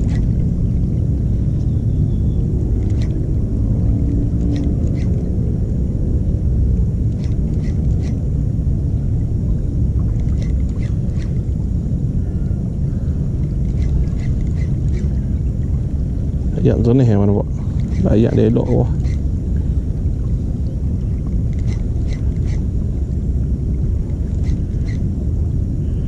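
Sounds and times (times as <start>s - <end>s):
wind buffeting microphone: 0.0s - 26.0s
faint high ticks: 2.8s - 3.2s, 4.0s - 5.3s, 7.1s - 8.2s, 13.4s - 15.2s.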